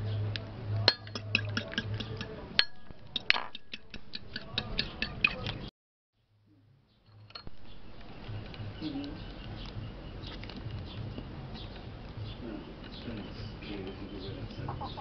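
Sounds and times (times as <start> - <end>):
spoon beating eggs in bowl: 1.0 - 5.6.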